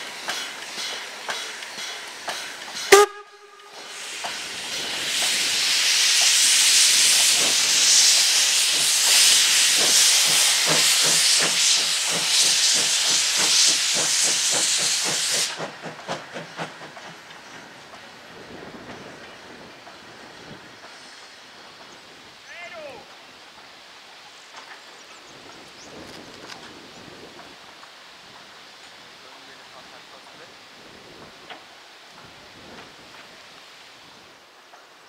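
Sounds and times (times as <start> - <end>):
steam locomotive exhaust beats: 0.0 - 22.3
loud steam hiss: 0.0 - 35.0
steam whistle toot: 2.9 - 3.9.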